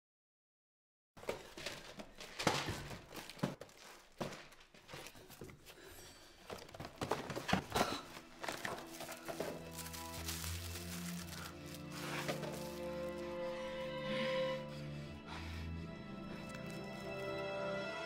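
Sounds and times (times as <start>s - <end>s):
rustling of objects handled: 1.2s - 13.4s
objects knocking and thudding: 6.5s - 9.9s.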